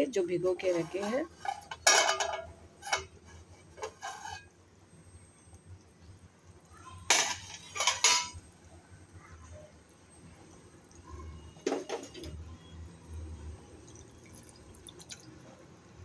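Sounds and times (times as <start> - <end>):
metal lid clanking on a pot: 1.4 - 3.1, 7.1 - 8.4.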